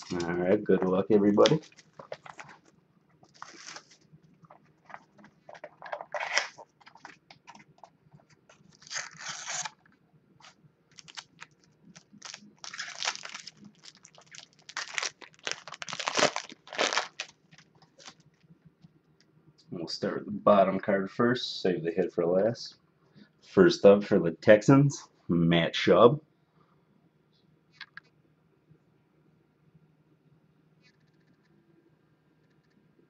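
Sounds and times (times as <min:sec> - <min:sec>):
plastic wrapper tearing and crinkling: 0:01.4 - 0:07.6, 0:08.5 - 0:18.3.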